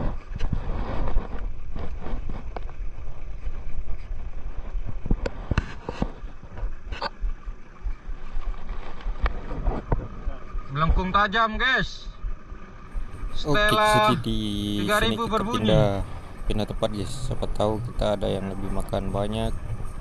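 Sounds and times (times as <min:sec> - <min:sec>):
wind: 0:00.0 - 0:20.0
water noise: 0:12.3 - 0:20.0.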